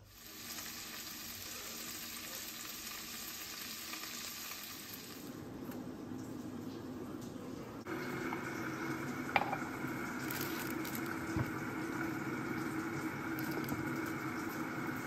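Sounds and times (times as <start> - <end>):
kitchen appliance humming: 0.0 - 15.0
mug clinking on countertop: 9.3 - 9.7.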